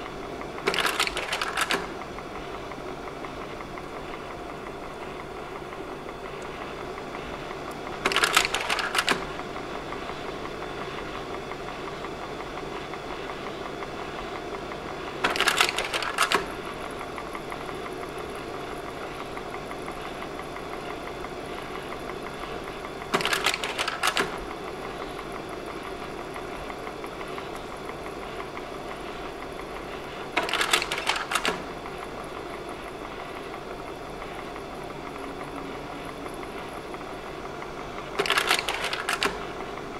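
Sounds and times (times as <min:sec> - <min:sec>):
projector cooling fan running: 0:00.0 - 0:39.9
slide-change mechanism clacking: 0:30.4 - 0:31.7, 0:38.2 - 0:39.5.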